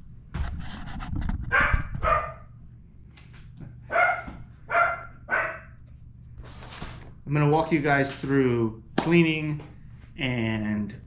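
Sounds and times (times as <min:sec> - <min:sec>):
dog barking: 0:01.5 - 0:02.5, 0:03.9 - 0:05.8.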